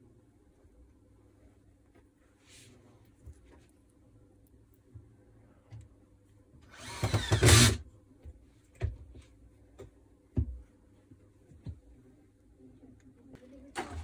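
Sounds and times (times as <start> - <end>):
power tool motor whirring: 6.7 - 7.8.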